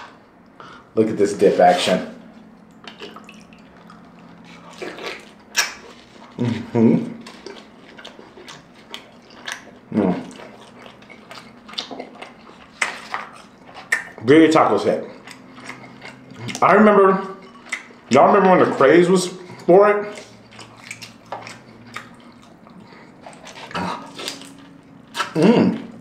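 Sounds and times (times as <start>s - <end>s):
wet chewing and slurping: 2.4s - 26.0s
person humming: 25.4s - 25.9s.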